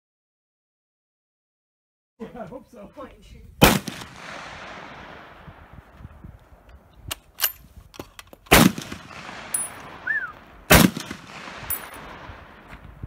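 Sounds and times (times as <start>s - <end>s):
rifle shot echoing: 3.6s - 6.0s, 8.5s - 12.8s.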